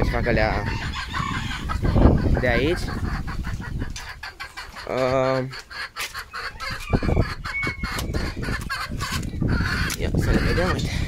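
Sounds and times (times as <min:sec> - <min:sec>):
wind rumble on microphone: 0:00.0 - 0:04.3, 0:06.5 - 0:11.0
chickens clucking: 0:00.0 - 0:11.0
chicken wavering call: 0:00.6 - 0:10.6.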